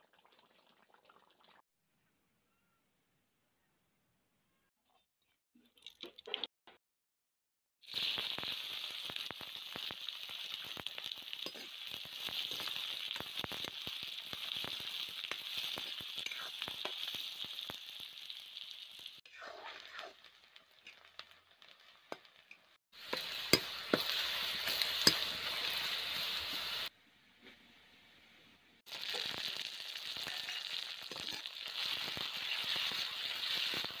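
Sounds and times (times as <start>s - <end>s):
onions sizzling in oil: 7.8s - 26.9s, 28.9s - 34.0s.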